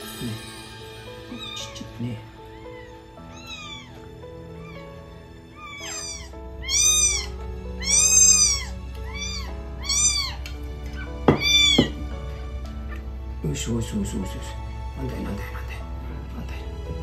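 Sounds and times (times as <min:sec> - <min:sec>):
kitten meowing: 0:01.3 - 0:12.1.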